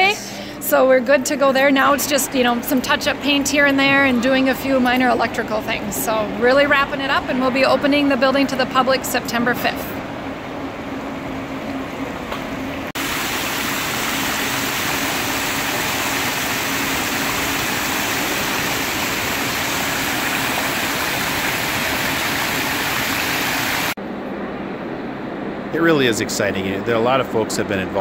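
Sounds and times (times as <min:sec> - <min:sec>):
steady hum: 0:00.0 - 0:28.0
water cascading into pool: 0:13.0 - 0:24.0.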